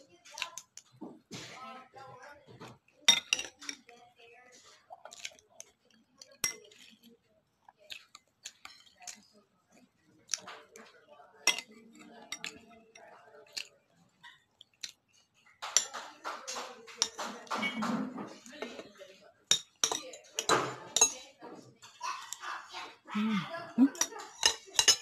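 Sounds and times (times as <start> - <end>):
fork clinking against dish: 23.9 - 25.0.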